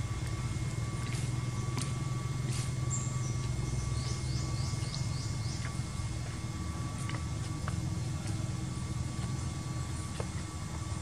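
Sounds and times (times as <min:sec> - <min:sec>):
steady low hum: 0:00.0 - 0:11.0
bird chirping: 0:02.8 - 0:05.9.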